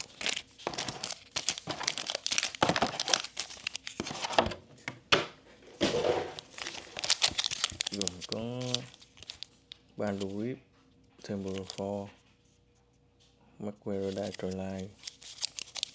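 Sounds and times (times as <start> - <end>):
foil packs crinkling: 0.0 - 4.5, 5.9 - 10.4, 11.3 - 12.1, 14.0 - 15.9.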